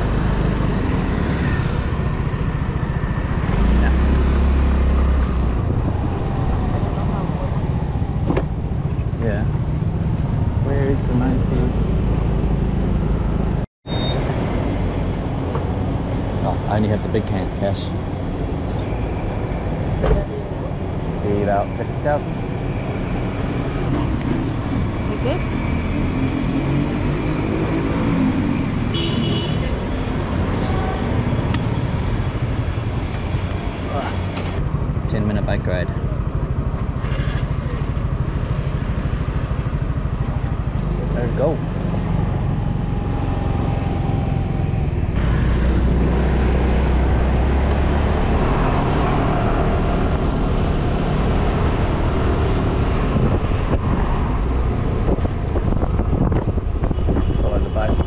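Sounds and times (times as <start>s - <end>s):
vehicle engines rumbling: 0.0s - 58.0s
short high electronic beep: 13.9s - 14.2s
wind on microphone: 42.6s - 58.0s.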